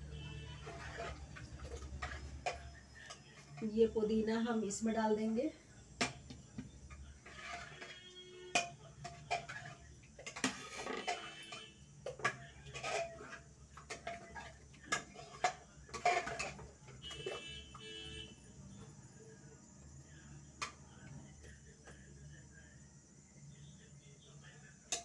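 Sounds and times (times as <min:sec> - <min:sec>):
metal pots and ladle clinking: 0:00.4 - 0:04.9, 0:06.0 - 0:18.1.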